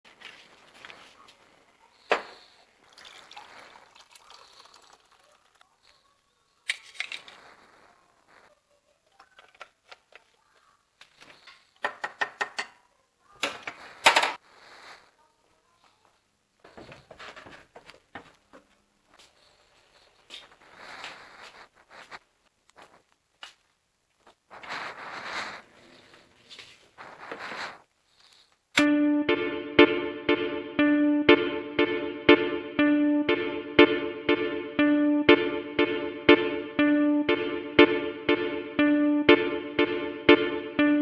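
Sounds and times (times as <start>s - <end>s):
rustling: 17.0s - 28.7s.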